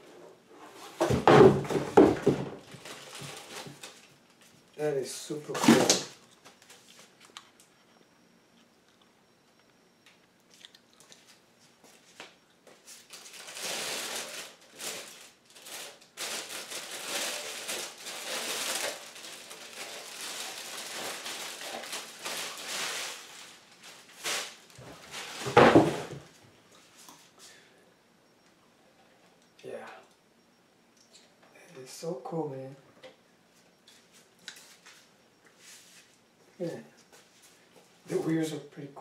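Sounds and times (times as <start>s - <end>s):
plastic bag crinkling: 2.6s - 4.2s, 13.0s - 25.6s.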